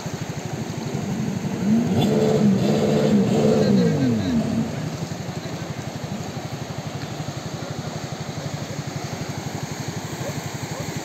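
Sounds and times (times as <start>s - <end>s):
engine idling: 0.0s - 11.0s
surf hissing: 0.0s - 11.0s.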